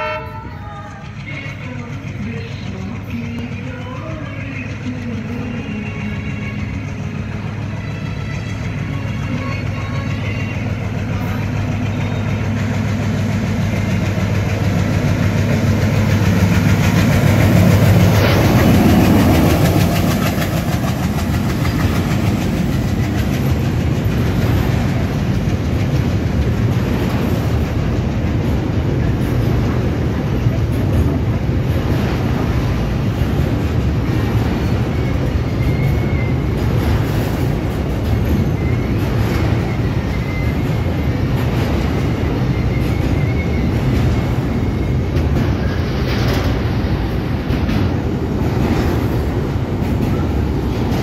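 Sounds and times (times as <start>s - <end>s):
locomotive engine drone: 0.0s - 51.0s
freight wagons rumbling and clacking: 8.9s - 51.0s.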